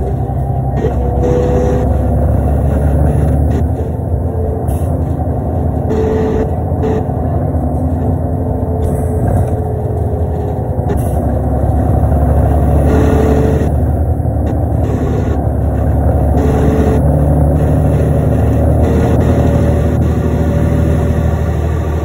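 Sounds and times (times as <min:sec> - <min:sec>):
bus engine running: 0:00.0 - 0:22.0.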